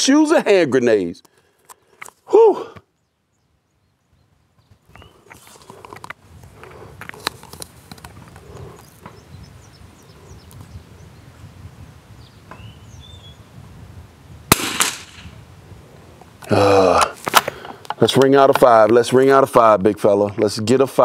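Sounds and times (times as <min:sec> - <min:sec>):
outdoor background noise: 0:00.0 - 0:21.0
rifle shot: 0:14.5 - 0:15.3.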